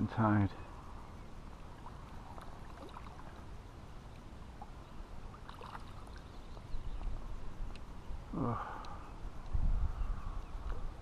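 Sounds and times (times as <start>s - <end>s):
lake water lapping and splashing: 1.6s - 7.9s
wind rumble on microphone: 9.1s - 11.0s.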